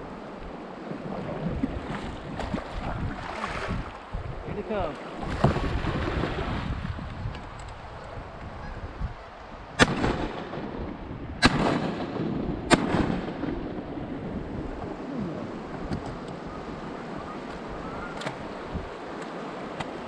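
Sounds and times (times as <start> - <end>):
shotgun shots: 9.8 - 10.5, 11.4 - 13.5.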